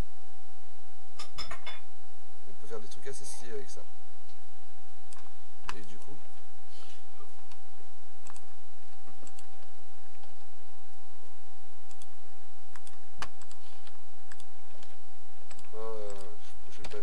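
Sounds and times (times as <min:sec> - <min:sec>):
faint steady electrical tone: 0:00.0 - 0:17.0
computer mouse and keyboard clicks: 0:05.1 - 0:06.1, 0:08.2 - 0:10.4, 0:12.7 - 0:17.0.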